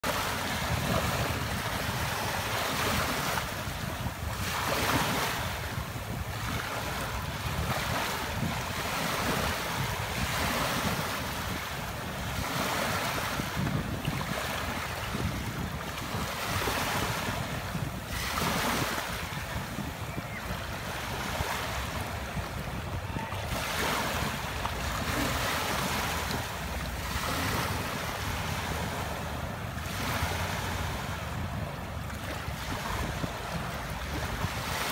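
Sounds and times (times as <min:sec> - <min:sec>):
small waves breaking on beach: 0:00.0 - 0:34.9.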